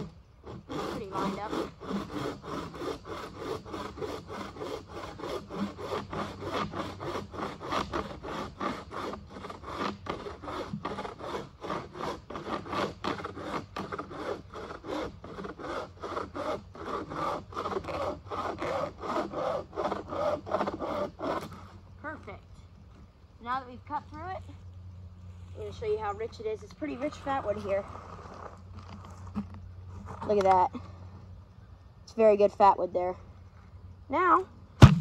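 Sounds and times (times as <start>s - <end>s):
bow saw cutting log: 0.0s - 21.8s.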